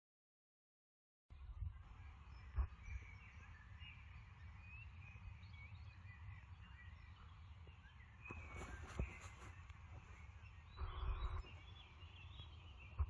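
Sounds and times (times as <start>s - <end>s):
small birds chirping: 1.3s - 13.0s
steady low rumble: 9.7s - 13.0s.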